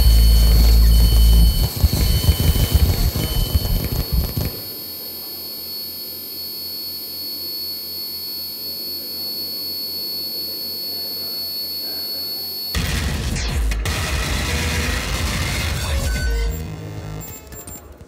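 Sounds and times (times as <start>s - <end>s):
electronic drone with whistling tones: 0.0s - 13.0s.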